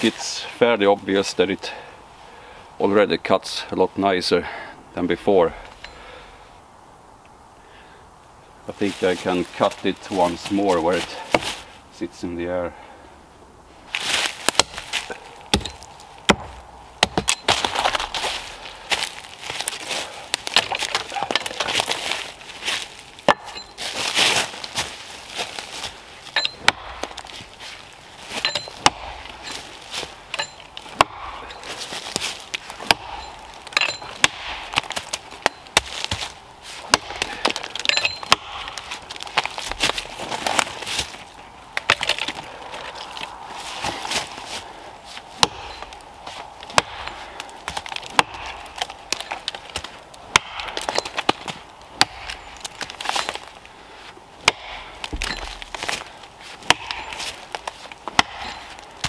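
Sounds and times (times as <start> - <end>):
axe chopping into wood: 11.2 - 11.6, 14.1 - 18.3, 20.3 - 22.0, 26.4 - 27.3, 28.4 - 29.6, 30.3 - 40.7, 45.4 - 46.0, 46.6 - 53.3, 54.4 - 58.8.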